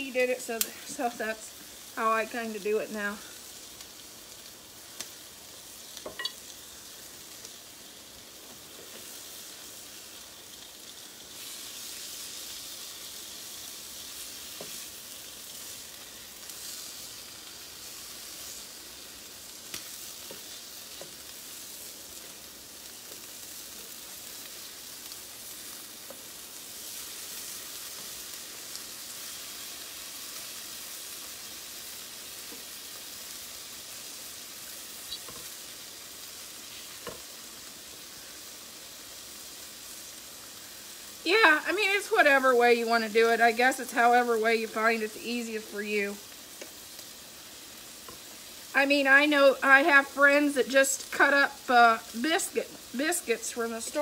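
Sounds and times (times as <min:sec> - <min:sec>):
bacon sizzling on griddle: 0:00.0 - 0:54.0.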